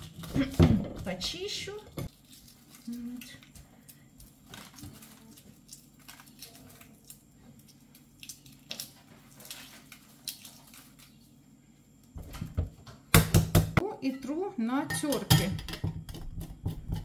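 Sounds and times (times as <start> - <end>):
egg shell cracking: 2.1 - 11.2.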